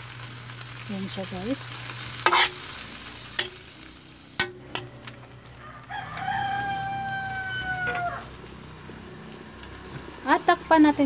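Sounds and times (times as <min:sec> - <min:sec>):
faint sizzle: 0:00.0 - 0:11.0
rooster crowing: 0:05.5 - 0:08.4.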